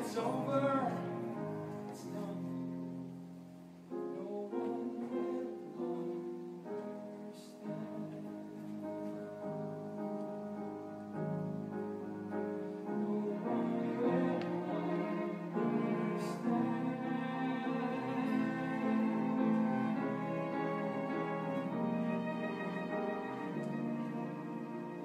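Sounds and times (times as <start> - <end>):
piano chords: 0.0 - 25.0
sustained string notes: 12.9 - 25.0.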